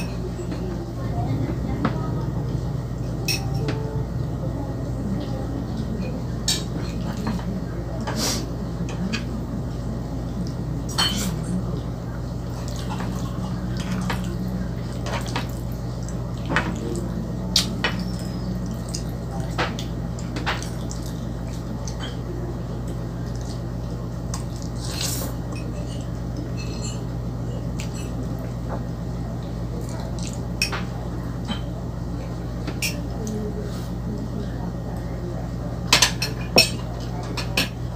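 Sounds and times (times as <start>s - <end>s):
steady low hum: 0.0s - 37.9s
chewing and wet mouth sounds: 12.4s - 26.5s, 29.4s - 30.6s.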